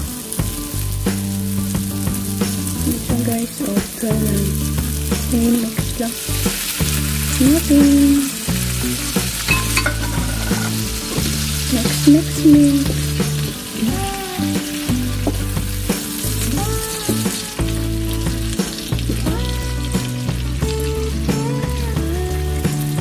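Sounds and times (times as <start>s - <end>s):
food sizzling in frying pan: 0.0s - 23.0s
wooden spatula stirring: 9.5s - 11.5s.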